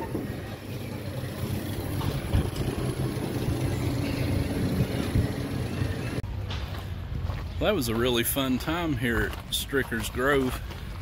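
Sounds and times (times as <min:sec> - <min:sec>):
low rumble: 0:00.1 - 0:07.2.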